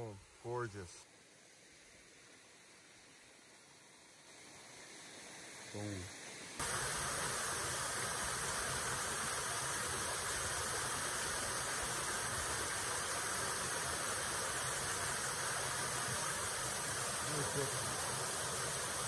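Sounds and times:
waterfall pouring into pool: 6.6s - 19.0s.

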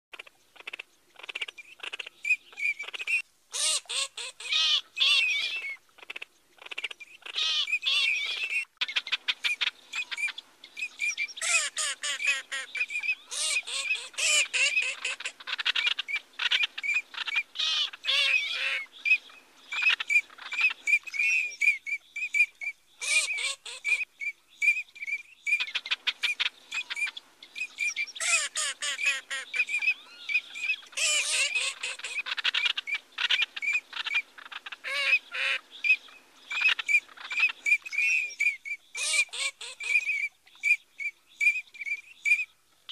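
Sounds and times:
duck calling: 31.0s - 35.6s.

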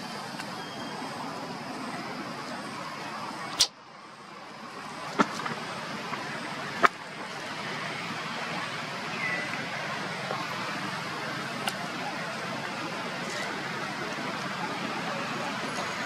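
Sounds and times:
outdoor background noise: 0.0s - 16.0s
faint chirp: 0.5s - 1.3s, 9.1s - 9.6s
sharp click: 3.5s - 3.7s.

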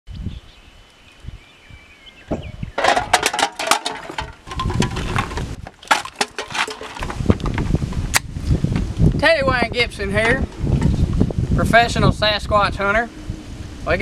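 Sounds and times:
birds chirping faintly: 0.1s - 3.1s
clicks and knocks: 2.3s - 7.7s.

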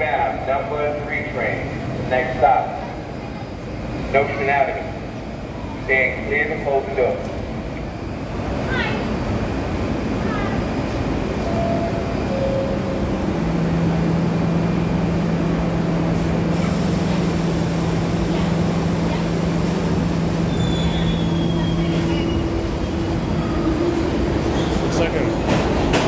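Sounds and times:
station rumble: 0.0s - 26.0s
train electrical hum: 0.0s - 26.0s
train doors shutting: 10.9s - 26.0s.

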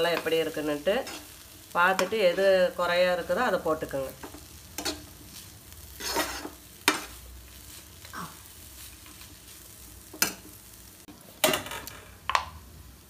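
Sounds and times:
frying sizzle: 0.0s - 13.0s
spatula scraping frying pan: 0.1s - 2.5s, 4.2s - 10.5s.

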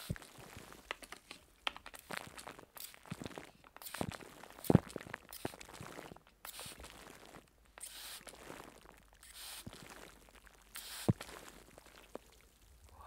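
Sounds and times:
spray bottle spritzing: 0.9s - 5.8s, 6.4s - 6.9s, 7.8s - 8.4s, 9.2s - 9.8s, 10.7s - 11.3s.

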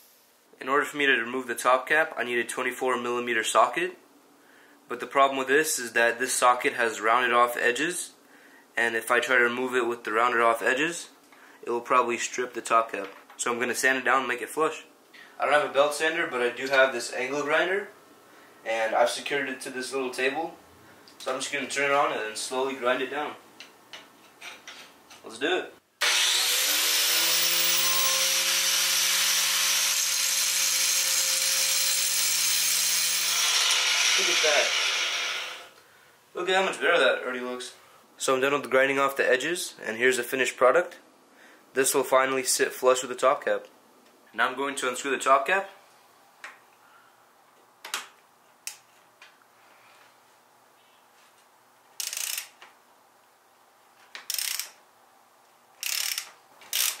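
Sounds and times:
angle grinder grinding steel: 26.0s - 35.8s
socket ratchet clicking: 52.0s - 52.6s, 54.2s - 54.8s, 55.8s - 57.0s.

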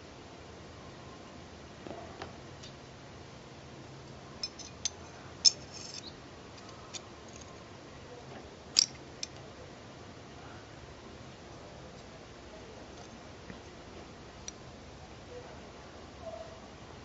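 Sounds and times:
small steel parts clicking: 4.4s - 7.6s, 8.8s - 9.4s.

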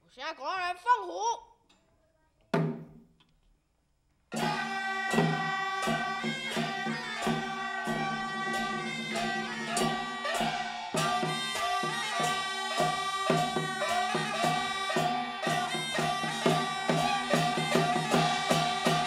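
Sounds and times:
percussion strikes: 4.3s - 19.0s.

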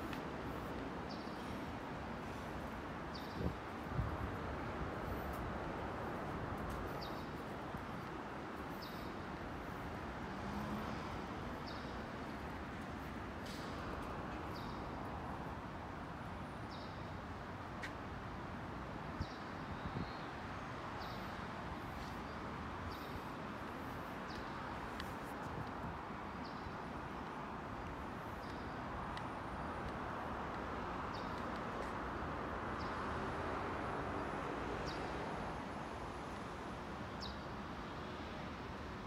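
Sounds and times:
traffic rumble: 0.0s - 19.2s.

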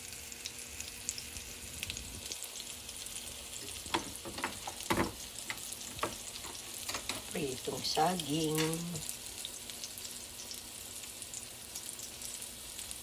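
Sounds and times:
plantain frying in hot oil: 0.0s - 13.0s
oil popping and crackling: 0.4s - 7.5s.

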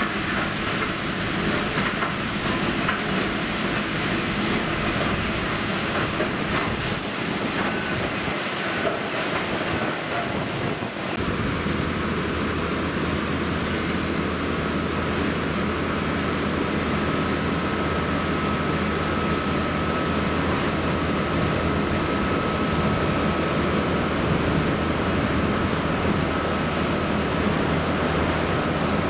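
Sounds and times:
train wheels clattering: 0.0s - 10.7s
brief high hiss: 6.8s - 7.4s.

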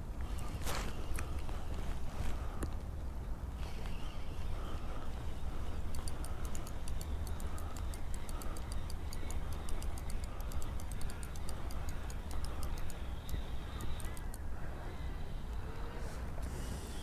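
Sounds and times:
fishing reel clicking rapidly: 5.8s - 14.4s.

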